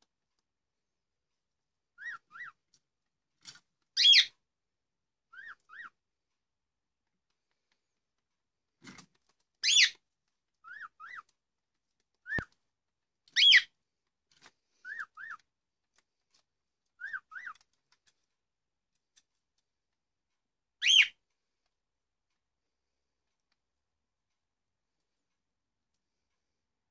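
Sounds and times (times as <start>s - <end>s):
cockatiel harsh calls: 2.0s - 2.6s, 4.0s - 4.3s, 5.3s - 6.0s, 9.6s - 10.0s, 10.6s - 11.3s, 13.4s - 13.7s, 14.8s - 15.4s, 17.0s - 17.6s, 20.8s - 21.1s.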